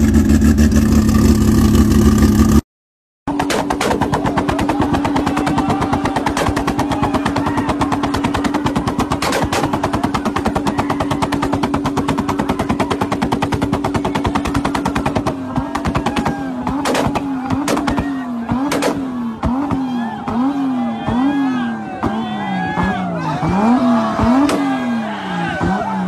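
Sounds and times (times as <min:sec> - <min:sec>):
car engine at rev limit: 0:03.3 - 0:26.0.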